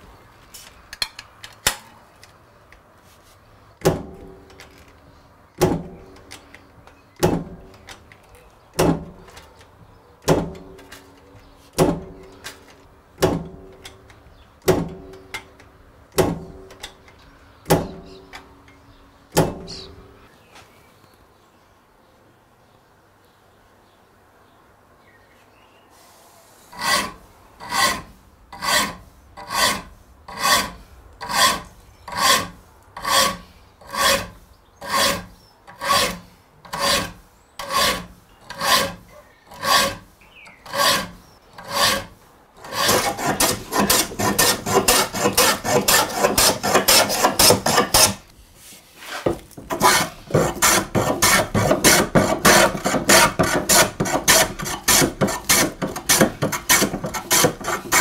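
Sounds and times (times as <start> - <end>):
file rasping on saw teeth: 26.7 - 48.2, 49.7 - 58.0.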